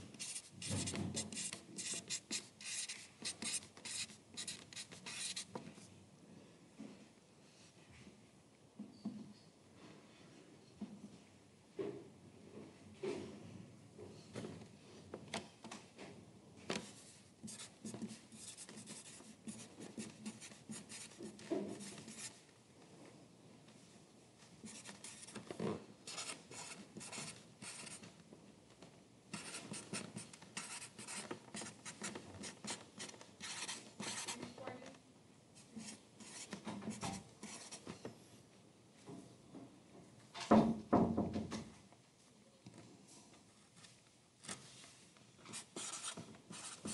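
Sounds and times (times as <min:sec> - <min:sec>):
pencil writing on paper: 0:00.2 - 0:05.5, 0:17.5 - 0:22.4, 0:24.7 - 0:25.4, 0:26.1 - 0:28.0, 0:29.3 - 0:34.5, 0:35.8 - 0:37.9, 0:45.5 - 0:46.9.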